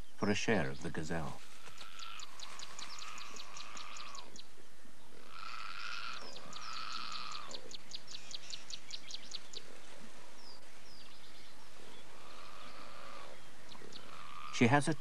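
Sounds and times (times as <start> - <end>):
birds calling sharp high notes: 0.0 - 4.5, 10.5 - 15.0.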